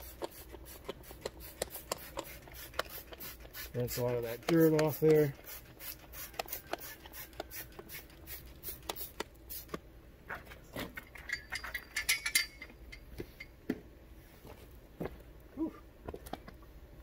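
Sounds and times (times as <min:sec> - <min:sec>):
trigger spray bottle squirting: 0:00.0 - 0:09.8
headlight clinking on metal stand: 0:11.2 - 0:13.5.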